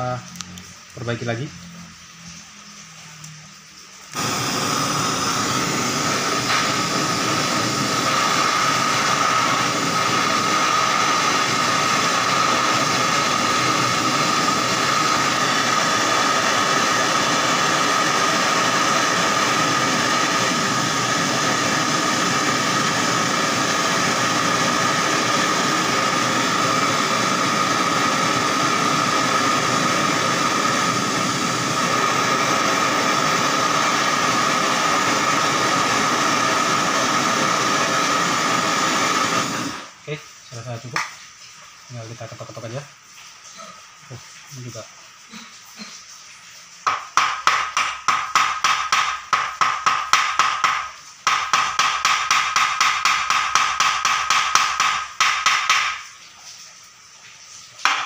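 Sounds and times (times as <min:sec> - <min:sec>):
blowtorch flame hissing: 0:00.0 - 0:41.1, 0:46.8 - 0:56.1.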